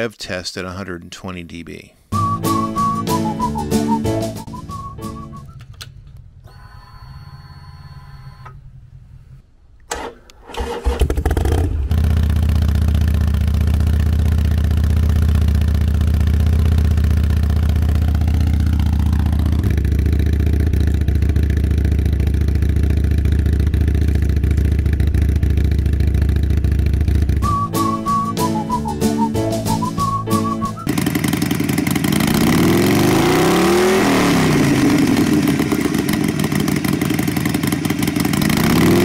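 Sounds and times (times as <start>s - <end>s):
motorcycle engine starting and idling: 9.8s - 27.6s, 30.8s - 39.0s.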